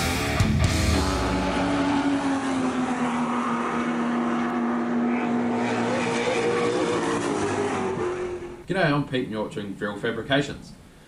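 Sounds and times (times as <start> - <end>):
race car engine running: 0.4 - 8.7.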